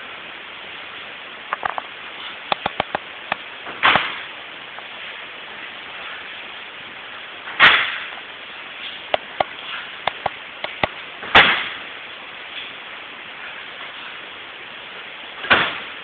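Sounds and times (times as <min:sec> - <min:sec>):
steady hiss: 0:00.0 - 0:16.0
bodies slapping on mats: 0:03.7 - 0:04.3, 0:10.7 - 0:11.8.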